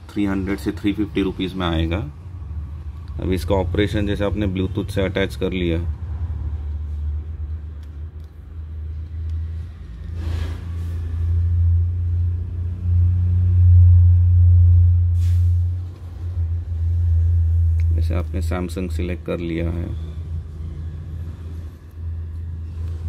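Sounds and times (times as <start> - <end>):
loud low rumble: 9.4 - 18.2
short hiss: 15.2 - 15.8.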